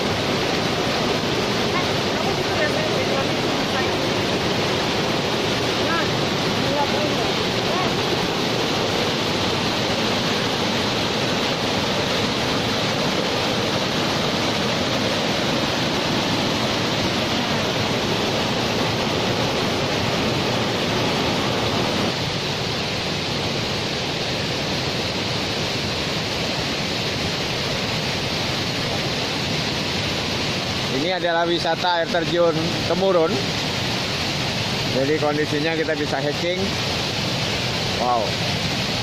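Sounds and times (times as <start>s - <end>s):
waterfall rushing over rock: 0.0s - 39.0s.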